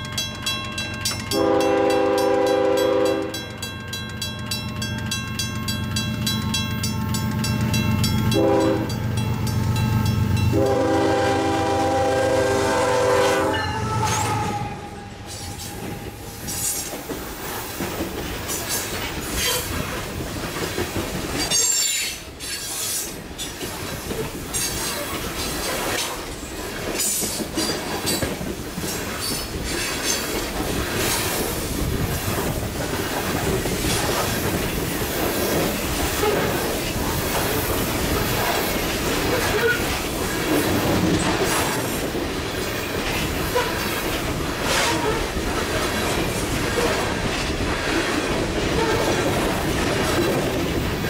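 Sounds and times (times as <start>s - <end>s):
train horn blast: 1.3s - 3.4s, 8.3s - 9.0s, 10.4s - 16.3s
train wheels clattering: 13.1s - 51.0s.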